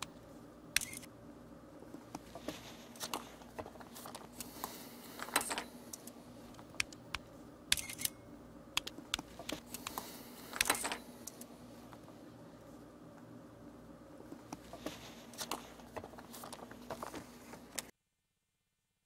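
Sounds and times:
paper rustling: 0:02.3 - 0:05.6, 0:14.7 - 0:17.9.

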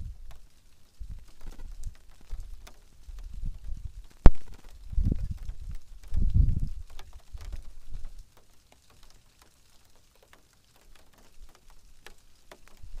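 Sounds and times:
wind buffeting microphone: 0:00.0 - 0:00.4, 0:01.0 - 0:08.2
faint ticks: 0:00.0 - 0:13.0.

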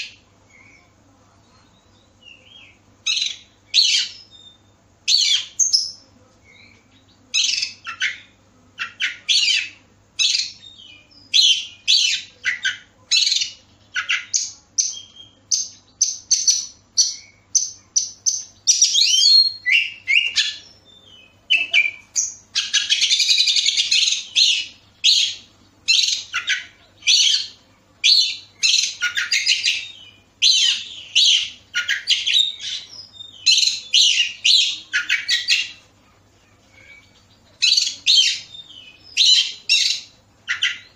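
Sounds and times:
bird singing whistled phrases: 0:18.7 - 0:35.8.

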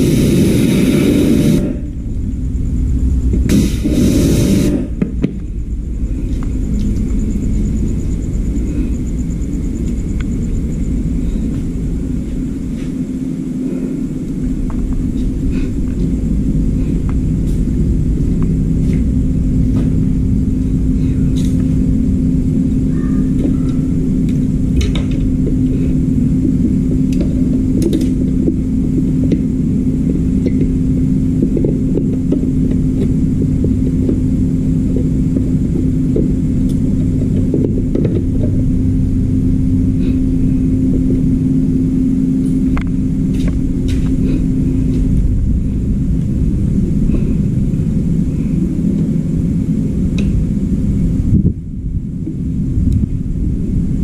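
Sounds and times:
constant hum: 0:00.0 - 0:54.0
low mechanical rumble: 0:00.0 - 0:54.0.

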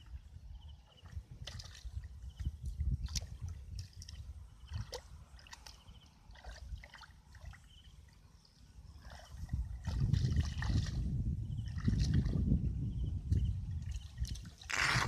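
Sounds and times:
hands splashing in muddy water: 0:01.4 - 0:07.7, 0:09.0 - 0:12.5.

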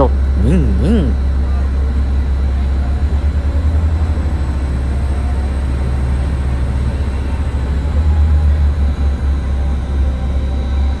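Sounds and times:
diesel railcar droning past: 0:02.2 - 0:10.9.

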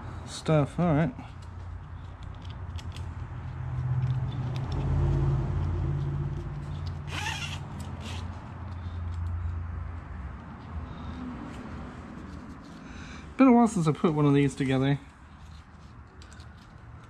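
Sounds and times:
strap rasp: 0:01.9 - 0:09.5
buckle clicks: 0:04.0 - 0:04.9, 0:05.6 - 0:09.4.

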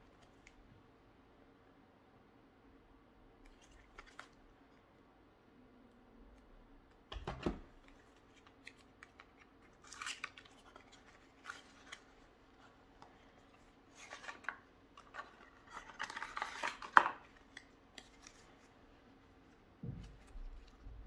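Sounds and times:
playing cards rustling and clicking: 0:03.5 - 0:04.4, 0:07.0 - 0:18.8, 0:19.8 - 0:21.0.

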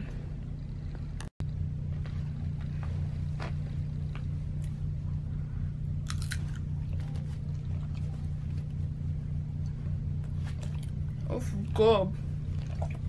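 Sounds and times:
steady low hum: 0:00.0 - 0:13.0
person chewing food: 0:06.0 - 0:08.9.

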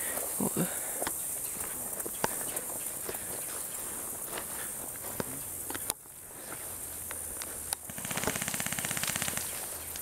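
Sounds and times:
airsoft gun full-auto burst: 0:07.8 - 0:09.9.

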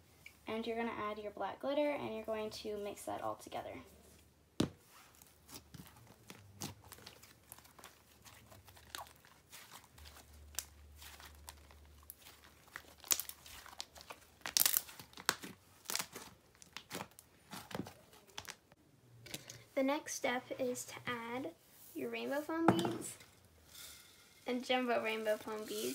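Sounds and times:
slime being kneaded by hand: 0:04.6 - 0:18.7.

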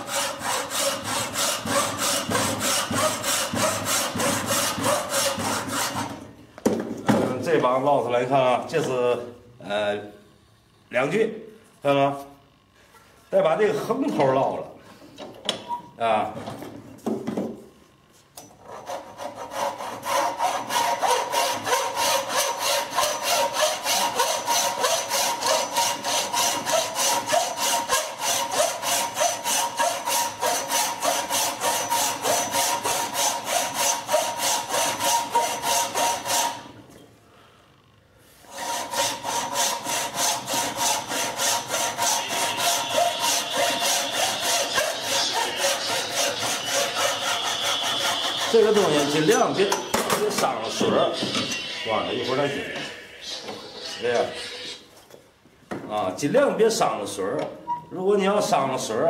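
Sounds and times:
hand saw cutting wood: 0:00.0 - 0:06.3, 0:18.6 - 0:36.8, 0:38.4 - 0:52.4.

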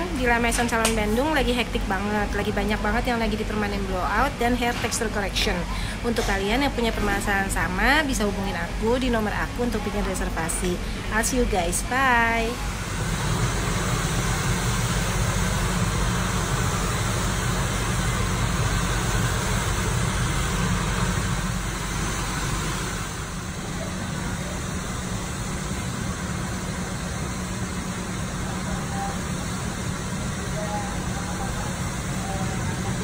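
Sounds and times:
hair dryers running: 0:12.2 - 0:33.0.

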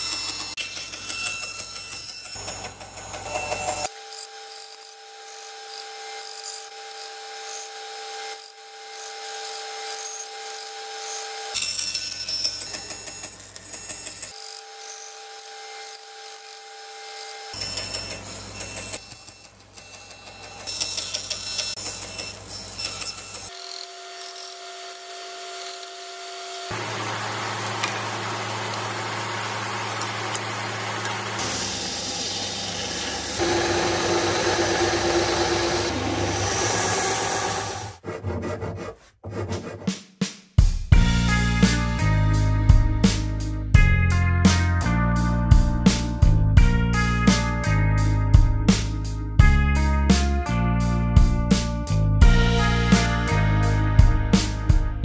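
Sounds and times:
bandsaw cutting wood: 0:00.0 - 0:11.6, 0:23.4 - 0:38.9.

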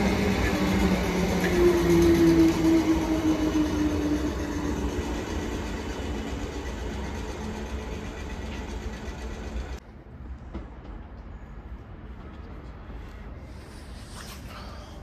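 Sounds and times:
train motor whine: 0:00.0 - 0:09.8
train wheel and track rumble: 0:00.0 - 0:14.0.

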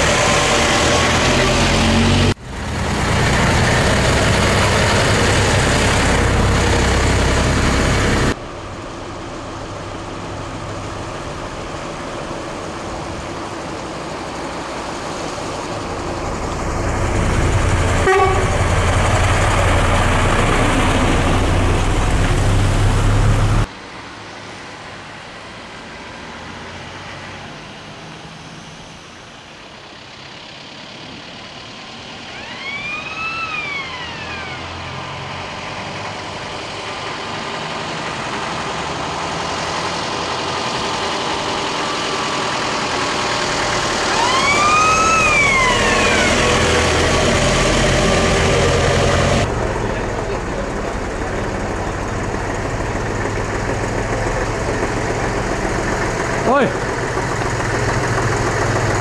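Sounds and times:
truck diesel engines passing: 0:00.0 - 0:59.0
horn with rising falling pitch: 0:18.0 - 0:18.9, 0:44.0 - 0:49.5.

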